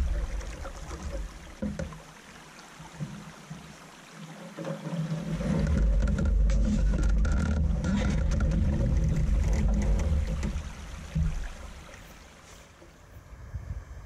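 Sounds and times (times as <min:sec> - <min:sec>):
water running through dam: 0:00.0 - 0:13.9
wind buffeting microphone: 0:13.2 - 0:14.0.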